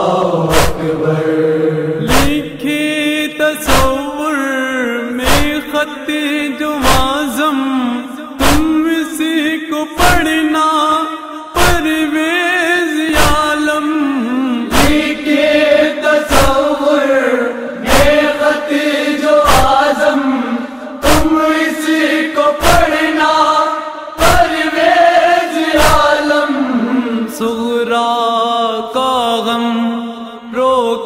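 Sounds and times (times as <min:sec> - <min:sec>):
man chanting an elegy: 0:00.0 - 0:14.9
chest-beating thumps: 0:00.4 - 0:01.0, 0:02.0 - 0:02.7, 0:03.6 - 0:04.1, 0:05.2 - 0:05.7, 0:06.8 - 0:07.2, 0:08.4 - 0:08.8, 0:14.7 - 0:15.2, 0:16.3 - 0:16.8, 0:17.8 - 0:18.4, 0:19.4 - 0:20.0, 0:21.0 - 0:21.4.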